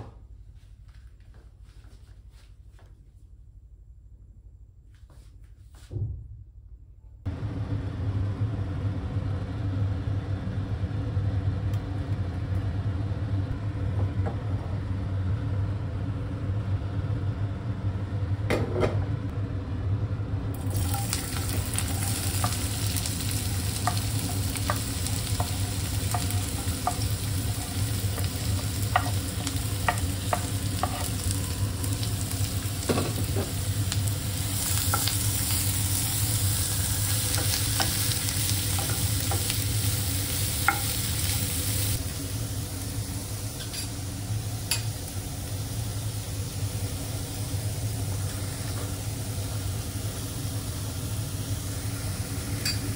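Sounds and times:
steady low hum: 0.0 - 52.9
vegetables sizzling in oil: 20.6 - 52.9.

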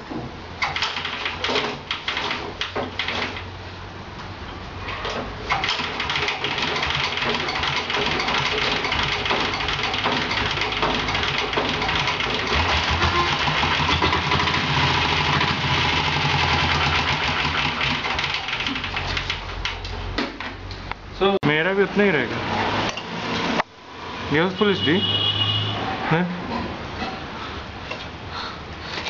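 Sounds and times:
motorcycle diesel engine running: 11.2 - 18.3.

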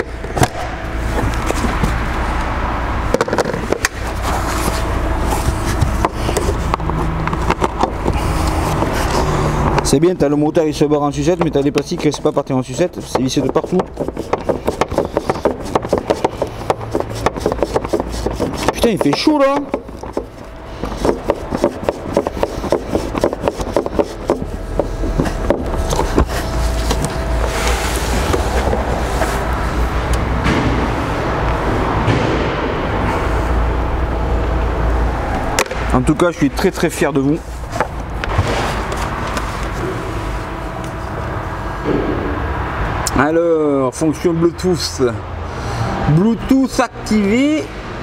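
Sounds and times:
steady low hum: 0.0 - 48.0
hand tools clicking and knocking: 11.2 - 26.3.

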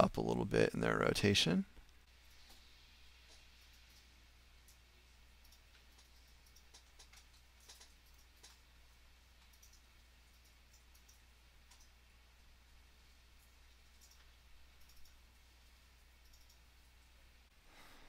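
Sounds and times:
low electrical hum: 0.0 - 18.0
mouse and keyboard clicks: 5.4 - 8.6, 9.4 - 12.0.

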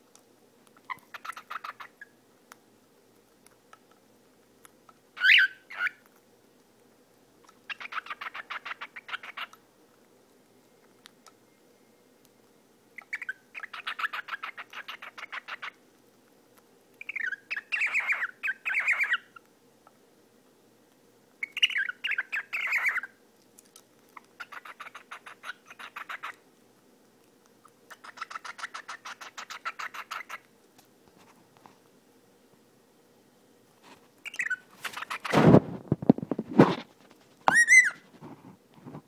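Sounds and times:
bird chirp: 0.8 - 2.2, 5.2 - 6.0, 7.4 - 9.6, 12.9 - 15.8, 17.0 - 19.4, 21.4 - 23.2, 24.4 - 26.4, 27.9 - 30.4, 34.2 - 35.4, 37.5 - 38.0.

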